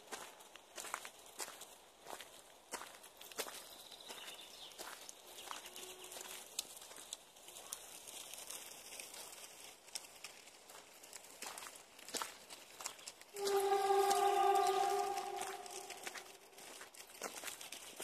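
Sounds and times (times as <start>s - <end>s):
footsteps on pine needles: 10.5s - 18.0s.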